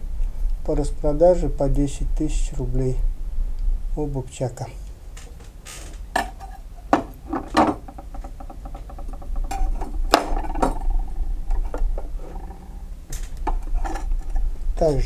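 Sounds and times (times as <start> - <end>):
knife scraping: 13.5 - 14.5.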